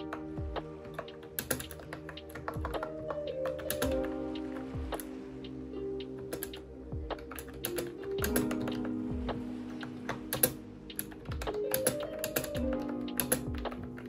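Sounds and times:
background music: 0.0 - 14.0
keyboard key clicks: 1.0 - 4.1, 6.2 - 8.9, 10.1 - 14.0.

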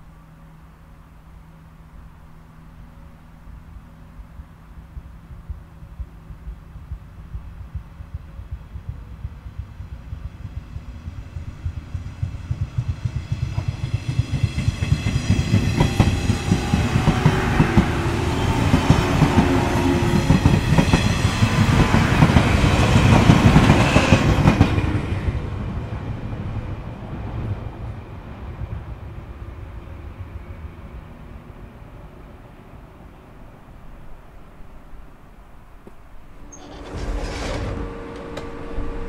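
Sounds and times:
train wheels clattering over rail joints: 36.4 - 39.0.

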